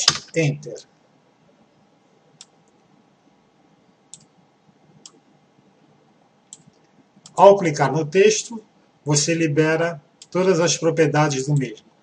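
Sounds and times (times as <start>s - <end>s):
faint computer input clicks: 4.1s - 4.3s, 6.5s - 7.4s.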